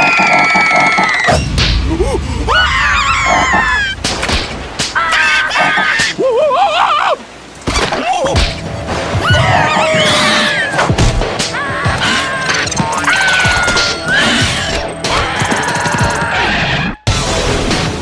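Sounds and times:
comic hits: 1.3s - 6.2s
cartoon creature voices chattering: 5.0s - 6.3s.

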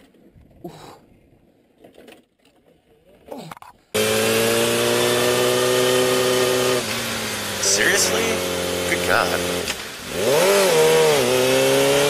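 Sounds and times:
motorcycle engine: 3.9s - 12.0s.

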